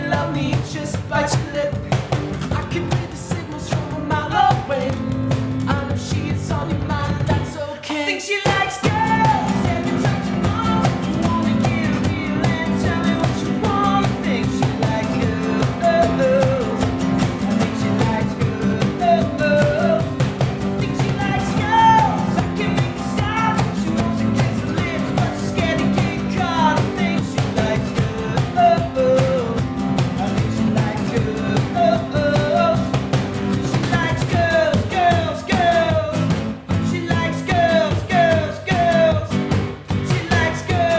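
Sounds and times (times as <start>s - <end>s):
man singing: 0.0s - 40.9s
strummed acoustic guitar: 0.0s - 40.9s.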